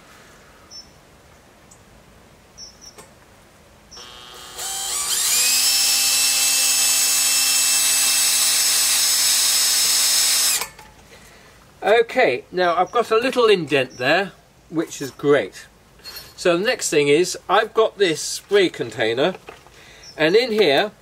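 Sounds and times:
cordless drill whining: 0:04.0 - 0:10.8
hole saw cutting steel: 0:04.0 - 0:10.8.

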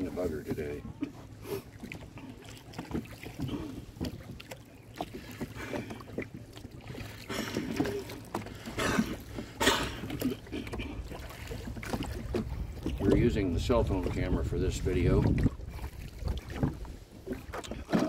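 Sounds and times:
oar splashing: 0:00.0 - 0:18.0
oars pulling through water: 0:00.0 - 0:18.0
wind rumble on microphone: 0:12.0 - 0:18.0.

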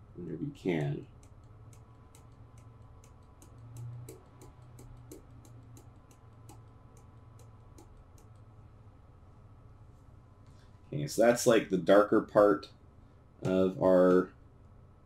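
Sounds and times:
low steady hum: 0:00.0 - 0:15.0
faint regular clicking: 0:01.0 - 0:08.5.

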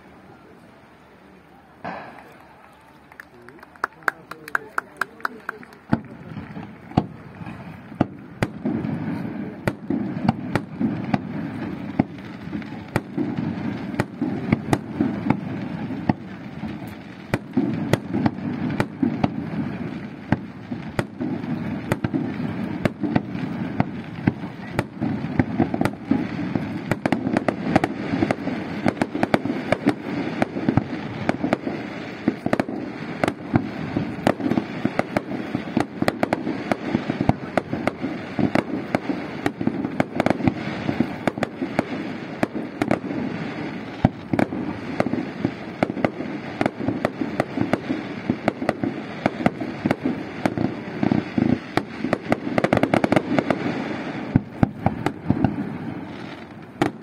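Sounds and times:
fireworks bursting with sharp bangs: 0:00.0 - 0:57.0.

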